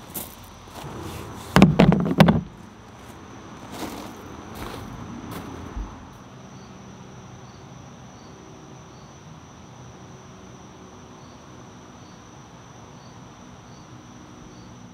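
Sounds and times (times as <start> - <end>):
insect chirps: 0.0 - 14.9
insects trilling: 0.0 - 14.9.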